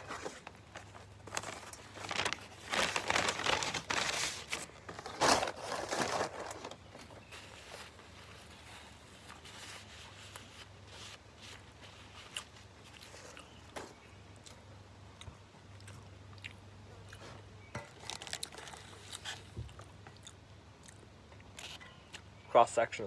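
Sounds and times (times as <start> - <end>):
paper wrapper crinkling: 0.0 - 14.0, 18.0 - 19.9
chewing with crunches: 7.2 - 22.3.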